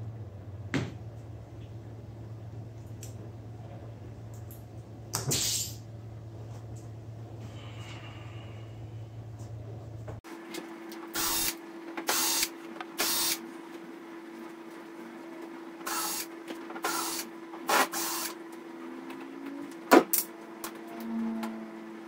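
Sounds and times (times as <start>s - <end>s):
cordless drill bursts: 11.2s - 13.4s, 15.9s - 18.4s.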